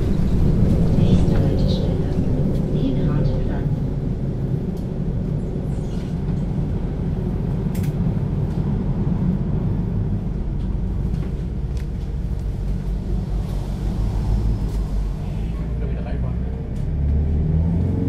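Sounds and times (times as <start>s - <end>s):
bus diesel engine rumbling: 0.0s - 18.0s.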